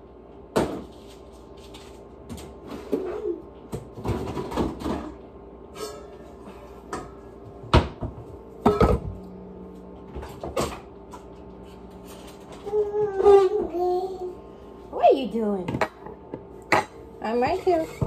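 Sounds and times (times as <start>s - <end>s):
dishes knocking and banging: 6.9s - 9.2s.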